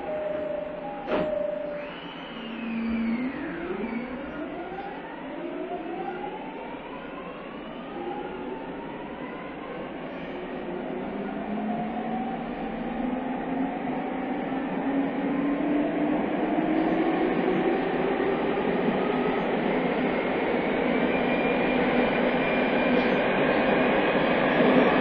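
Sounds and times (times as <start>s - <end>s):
electric train motors whining: 0.0s - 13.2s.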